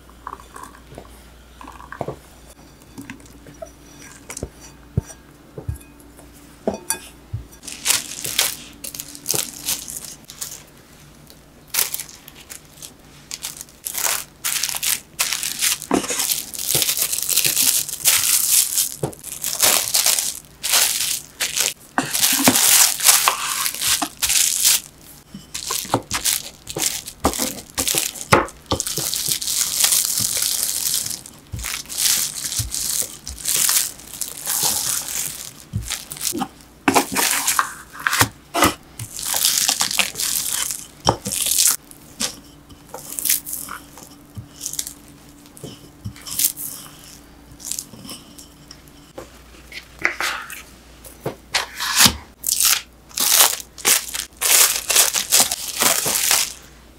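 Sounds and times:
plastic wrap crinkling: 7.6s - 38.3s, 39.0s - 41.9s, 42.9s - 45.2s, 46.2s - 46.8s, 52.4s - 56.7s.

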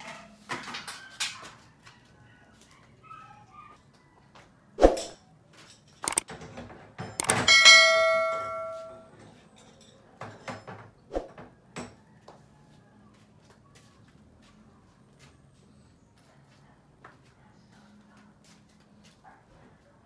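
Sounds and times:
metal parts clanking: 5.8s - 6.3s, 7.1s - 9.0s
struck metal ringing: 7.2s - 9.1s.

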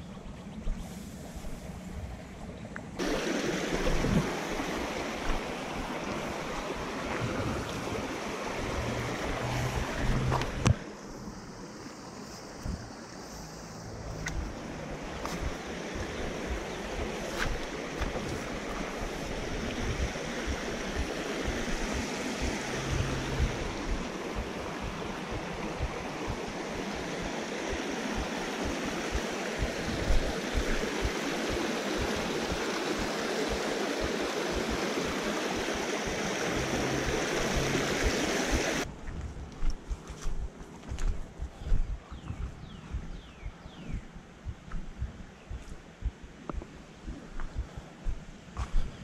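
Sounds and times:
water rushing over rocks: 3.0s - 11.0s, 14.1s - 38.9s.

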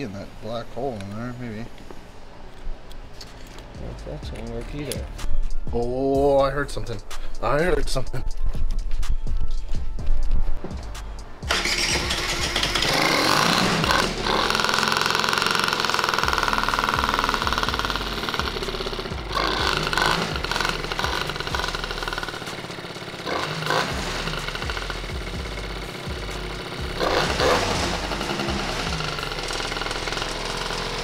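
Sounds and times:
scooter engine starting and revving: 11.4s - 31.0s.

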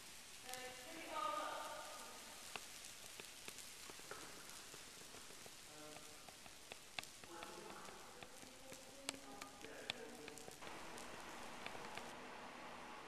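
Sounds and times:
paper confetti pattering on floor: 1.6s - 12.1s.

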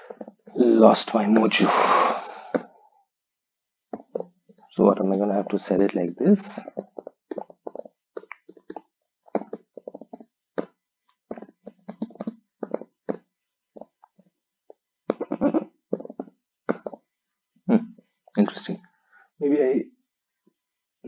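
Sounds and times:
typing on computer keyboard: 4.0s - 10.7s, 11.3s - 13.2s, 15.1s - 17.0s.

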